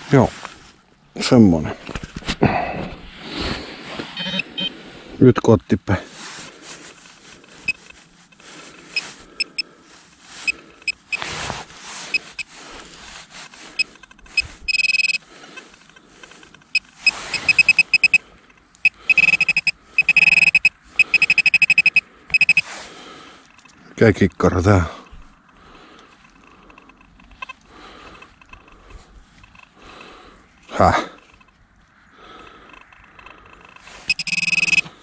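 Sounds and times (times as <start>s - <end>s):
pinpointer beeping: 4.1s - 4.7s, 7.6s - 7.9s, 8.9s - 9.6s, 10.4s - 11.2s, 12.1s - 12.5s, 13.8s - 15.2s, 16.6s - 18.2s, 18.8s - 22.6s, 34.0s - 34.9s
soil being scraped: 6.0s - 14.8s.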